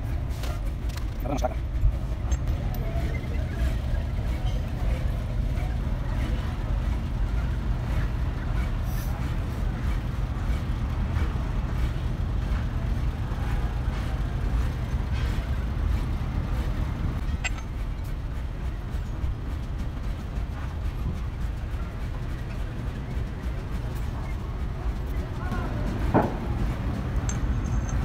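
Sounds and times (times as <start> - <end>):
vehicle engine rumbling: 0.0 - 28.0.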